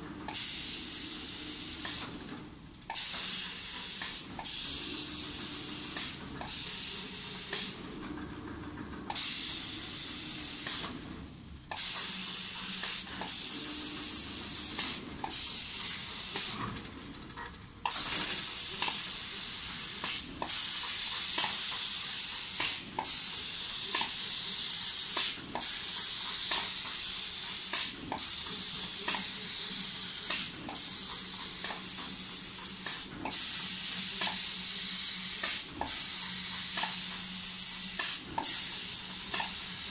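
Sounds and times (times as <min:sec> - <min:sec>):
spray gun hissing: 0:18.3 - 0:39.9.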